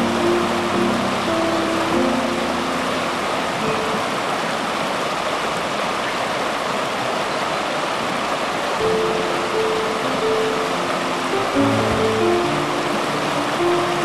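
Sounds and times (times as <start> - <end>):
water rushing over rocks: 0.0 - 14.0.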